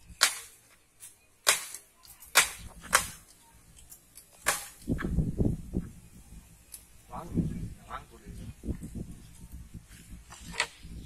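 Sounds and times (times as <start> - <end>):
machete chopping bamboo: 0.2 - 0.6, 1.4 - 3.2, 4.4 - 4.8.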